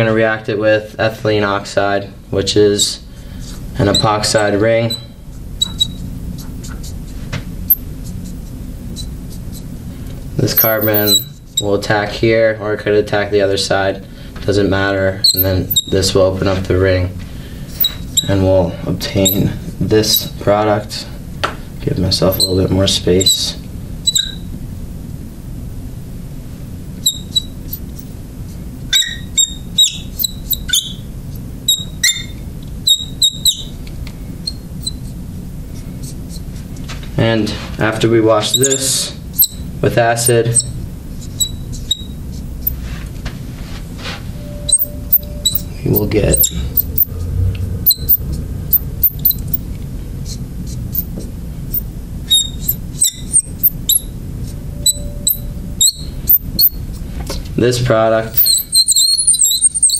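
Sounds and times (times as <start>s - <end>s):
steady low hum: 0.0s - 59.9s
marker squeaking on glass: 3.8s - 7.0s, 7.7s - 9.7s, 10.5s - 11.7s, 15.2s - 16.1s, 17.7s - 18.4s, 19.2s - 19.5s, 20.1s - 20.4s, 22.2s - 24.5s, 27.0s - 28.2s, 28.9s - 33.8s, 34.4s - 35.1s, 38.4s - 42.8s, 44.4s - 47.1s, 47.8s - 57.0s, 58.3s - 59.9s.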